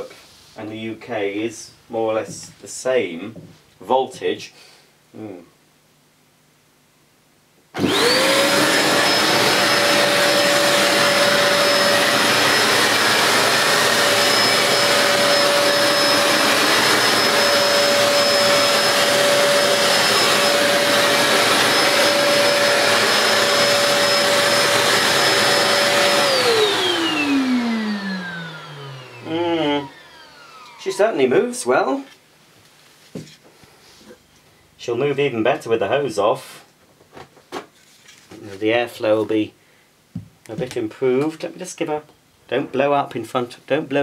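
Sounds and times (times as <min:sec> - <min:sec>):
vacuum cleaner motor whine: 0:07.8 - 0:31.6.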